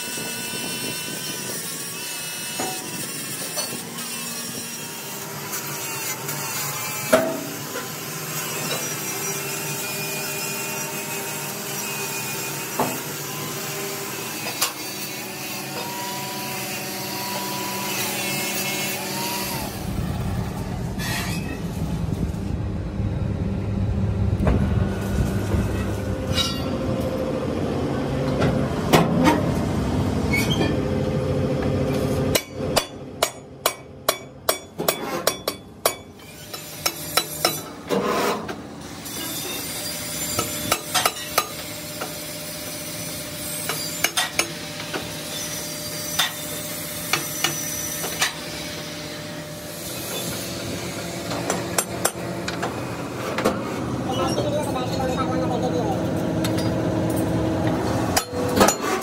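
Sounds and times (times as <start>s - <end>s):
lathe tool scraping metal: 21.0s - 21.7s, 25.8s - 26.8s
wavering squeal: 21.0s - 21.8s, 25.7s - 26.9s
steel rims clanking: 25.6s - 26.9s
sharp metal knocks: 32.3s - 37.7s.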